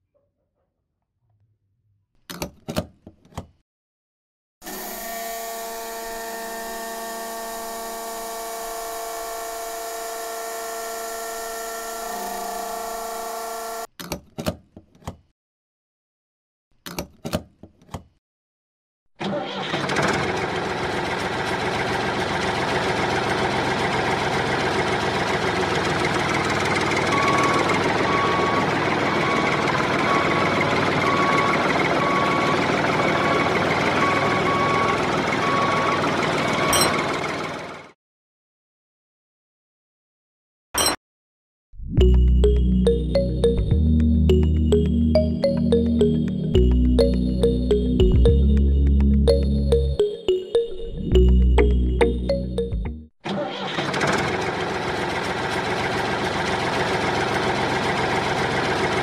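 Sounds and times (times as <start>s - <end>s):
engine running: 20.1s - 35.6s, 54.0s - 59.0s
repeated beeping: 42.0s - 53.1s.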